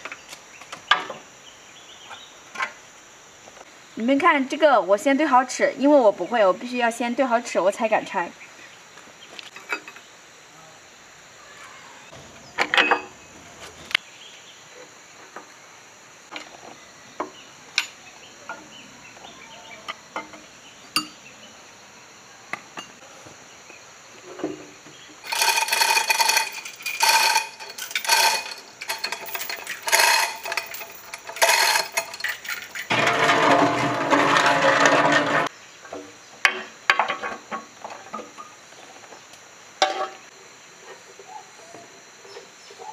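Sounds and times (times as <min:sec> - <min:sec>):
metal tools clinking on engine block: 0:09.5 - 0:10.1, 0:12.6 - 0:13.1, 0:25.2 - 0:35.4
metal chain clattering: 0:25.2 - 0:35.5.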